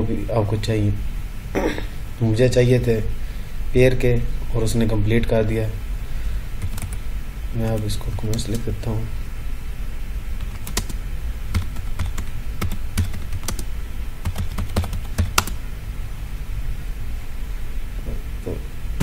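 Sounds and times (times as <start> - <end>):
steady low hum: 0.0 - 19.0
computer keyboard keystrokes: 6.6 - 7.0, 10.4 - 15.6.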